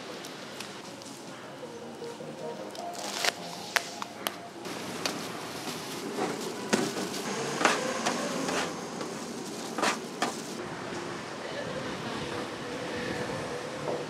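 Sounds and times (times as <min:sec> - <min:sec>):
hiss and rustle of tossed filling: 0:03.1 - 0:07.8.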